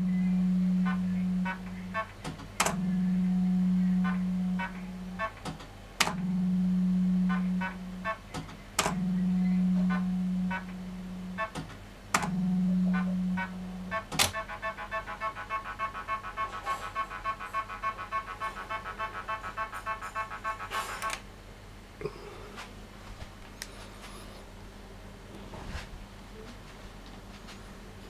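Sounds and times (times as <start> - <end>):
beeping electronic tune: 0.0 - 5.4, 6.1 - 8.3, 8.9 - 11.6, 12.2 - 21.2.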